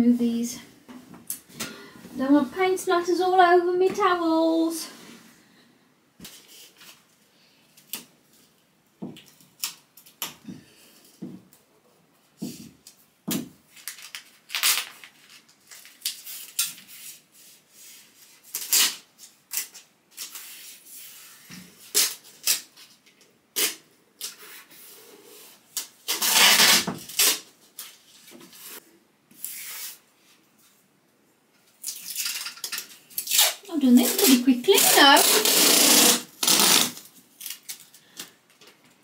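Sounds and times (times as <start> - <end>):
masking tape rubbing and ripping: 13.8 - 22.8, 23.5 - 24.7, 25.7 - 27.9, 28.6 - 30.0, 31.8 - 37.8.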